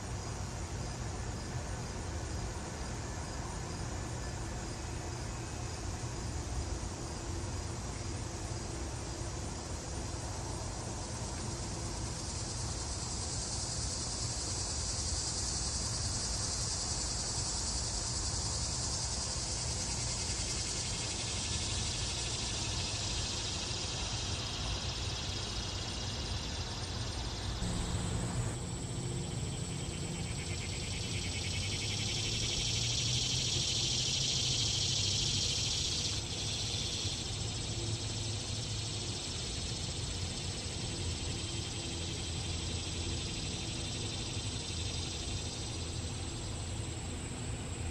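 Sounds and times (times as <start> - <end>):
cicadas buzzing: 0.0 - 47.9
low background rumble: 27.6 - 30.2.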